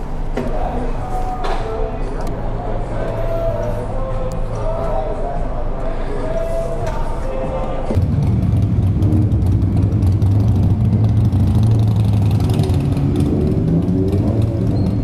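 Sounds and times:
motorcycle engines idling: 7.9 - 15.0.

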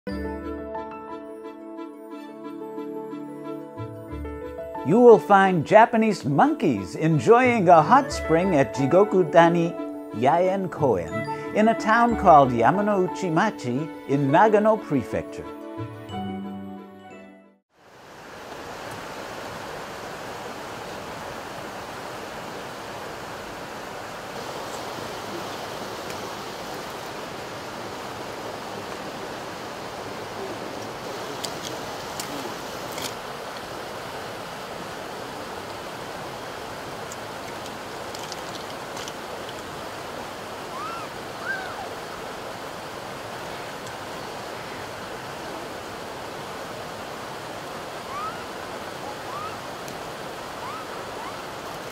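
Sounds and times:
flowing water rushing: 17.8 - 51.9
faint clicks: 37.0 - 39.7.

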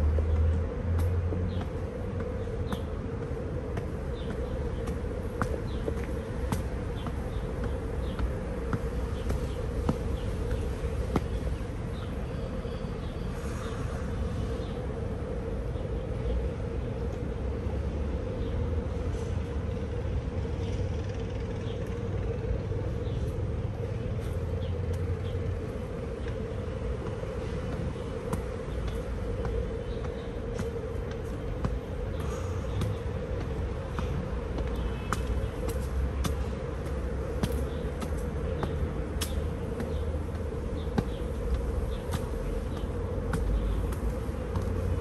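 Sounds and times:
footsteps clicking: 0.0 - 12.1, 24.2 - 45.0
low traffic rumble: 0.0 - 45.0.

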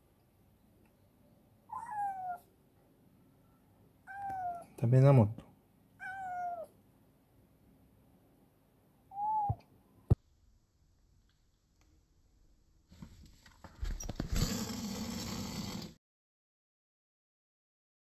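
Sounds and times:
kitten mewing: 1.7 - 2.5, 4.0 - 4.7, 6.0 - 6.8, 9.1 - 9.7
camera rustling and knocking: 12.9 - 15.8.

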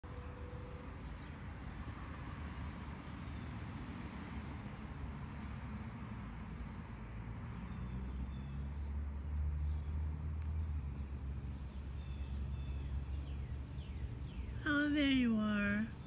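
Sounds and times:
low background rumble: 10.6 - 16.0.

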